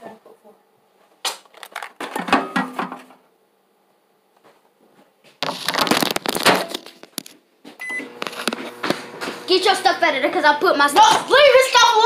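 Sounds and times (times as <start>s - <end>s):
rustling and scraping: 4.4s - 9.5s.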